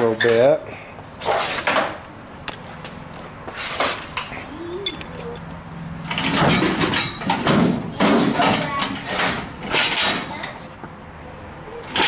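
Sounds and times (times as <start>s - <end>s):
metal clanks and knocks: 6.0s - 10.6s.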